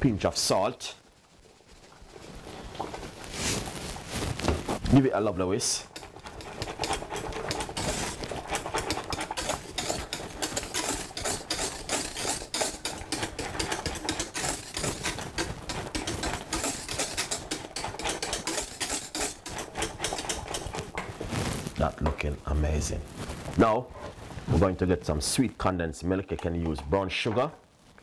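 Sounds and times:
whisk clattering in metal pan: 5.6s - 20.9s
liquid sloshing: 5.8s - 21.0s.

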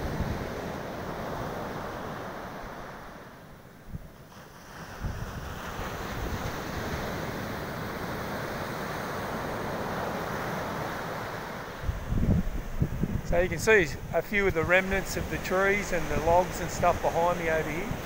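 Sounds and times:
ocean surf on beach: 0.0s - 18.0s
wind buffeting microphone: 4.8s - 8.7s, 11.8s - 18.0s.

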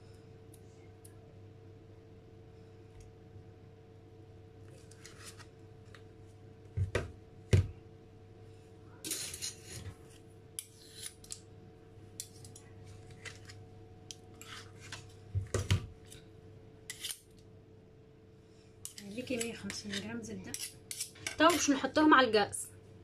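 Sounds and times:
spoon scraping: 9.1s - 11.4s, 12.2s - 15.0s, 16.9s - 17.3s, 18.8s - 21.8s.

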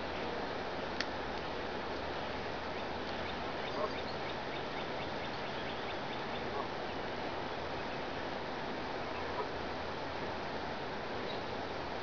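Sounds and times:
faint duck quacks: 9.1s - 9.6s.

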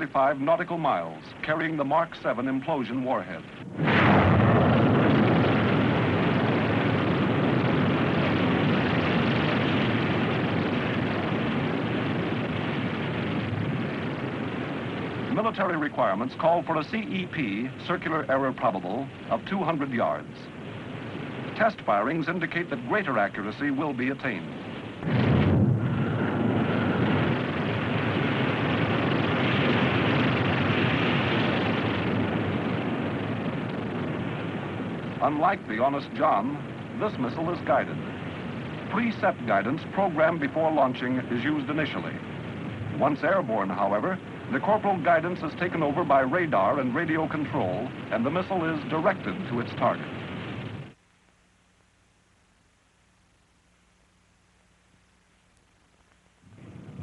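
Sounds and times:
rocket motor roaring: 3.6s - 18.0s, 18.6s - 40.6s, 56.4s - 57.0s.

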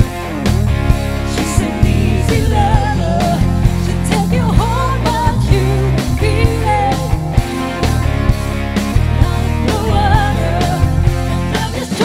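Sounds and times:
bass line: 0.0s - 12.0s
drums: 0.0s - 12.0s
electric guitar: 0.0s - 12.0s
keyboards: 0.0s - 12.0s
woman singing lead: 1.2s - 7.8s, 9.1s - 12.0s.

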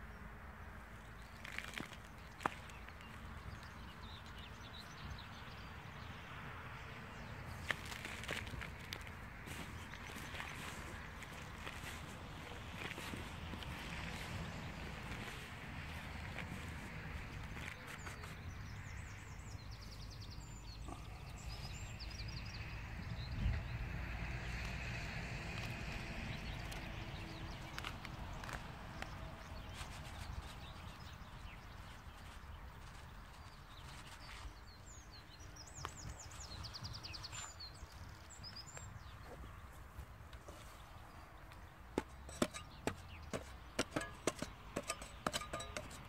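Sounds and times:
songbird singing: 0.0s - 46.0s
small birds chirping: 1.0s - 6.3s, 7.1s - 23.8s, 25.6s - 46.0s
wind rumble on microphone: 21.8s - 30.9s.

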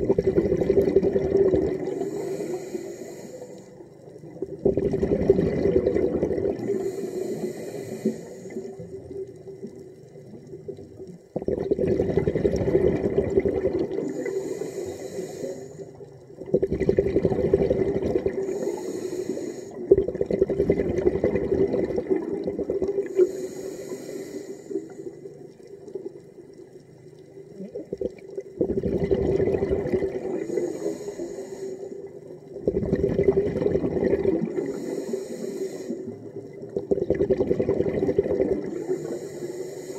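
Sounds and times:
bubbling exhaled air: 0.0s - 26.4s, 27.6s - 39.9s
regulator inhalation hiss: 1.9s - 3.8s, 6.6s - 8.9s, 14.0s - 16.1s, 18.4s - 19.8s, 23.0s - 25.2s, 30.3s - 32.1s, 34.5s - 36.2s, 38.7s - 39.9s.

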